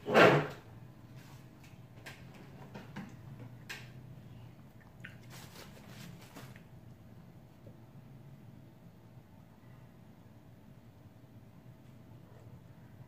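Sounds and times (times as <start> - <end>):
rustles: 5.0 - 6.7.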